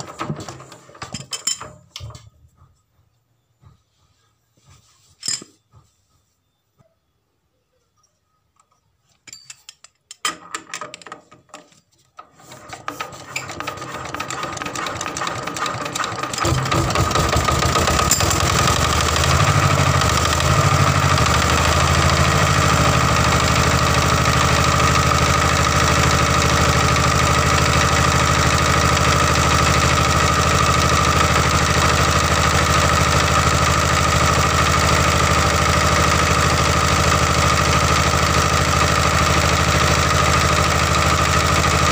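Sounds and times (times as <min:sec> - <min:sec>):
diesel engine starting and running: 0:12.7 - 0:41.9.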